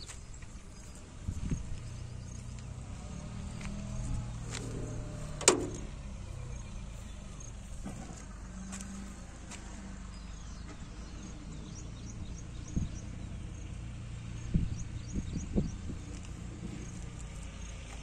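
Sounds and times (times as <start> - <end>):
generator diesel engine humming: 0.0 - 18.0
metal door clanging shut: 5.3 - 6.0.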